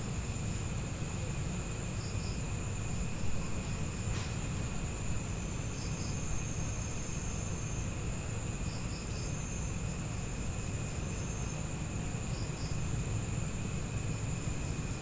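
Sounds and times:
insects trilling: 5.3 - 14.9.

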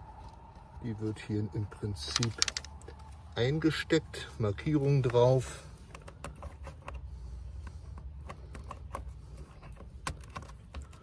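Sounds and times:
plastic plug clicks and rattles: 2.1 - 3.0.

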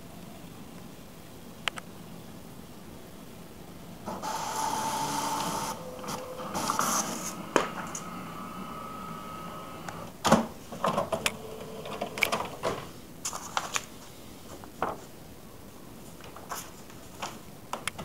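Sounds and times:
printer hum: 3.8 - 13.0
printer motor whir: 4.1 - 10.2
printer paper-feed clicks: 4.1 - 12.9.

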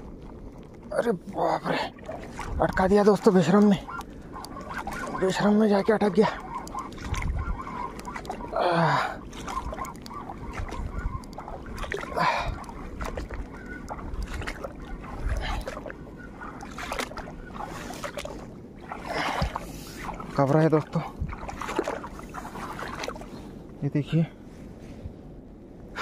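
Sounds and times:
water movement: 0.0 - 24.5
person calling out: 0.9 - 2.0, 8.5 - 9.2.

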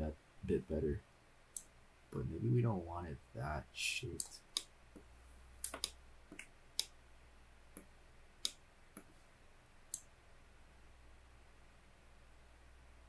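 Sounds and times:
faint low hum: 0.0 - 13.0
computer mouse clicks: 5.6 - 6.9.

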